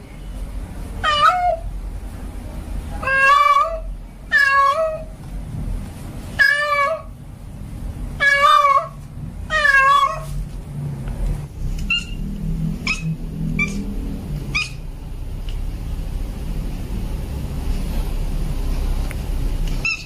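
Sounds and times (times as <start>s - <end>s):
low steady rumble: 0.0s - 20.0s
cat meowing: 1.0s - 1.6s, 3.0s - 5.1s, 6.4s - 7.1s, 8.2s - 10.3s, 12.8s - 13.8s.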